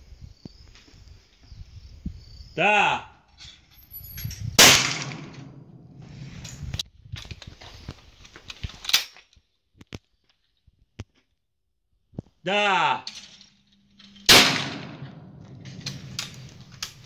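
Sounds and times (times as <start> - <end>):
shotgun shot with echo: 4.6 - 5.7, 14.3 - 16.4
sharp cracks: 4.6 - 6.0, 14.0 - 17.0.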